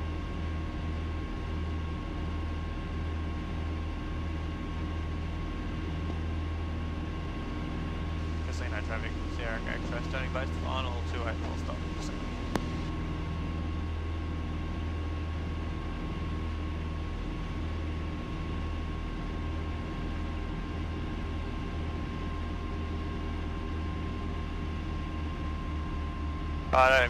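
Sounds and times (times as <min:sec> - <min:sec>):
aircraft engines droning: 0:00.0 - 0:27.0
faint high whine: 0:08.0 - 0:13.0, 0:26.2 - 0:27.0.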